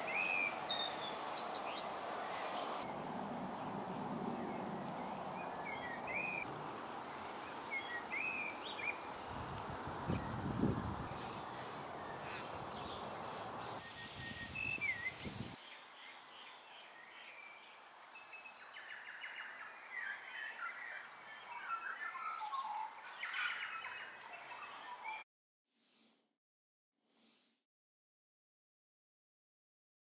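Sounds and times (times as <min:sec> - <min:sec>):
steady rushing noise: 0:00.0 - 0:07.6
birds chirping and warbling: 0:00.0 - 0:25.2.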